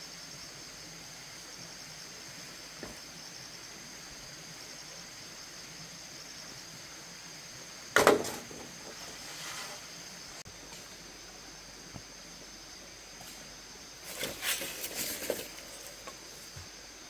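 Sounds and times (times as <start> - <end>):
insects buzzing: 0.0 - 17.0
bamboo poles knocking: 8.0 - 9.0
bamboo poles rattling: 8.0 - 9.4, 14.0 - 16.4.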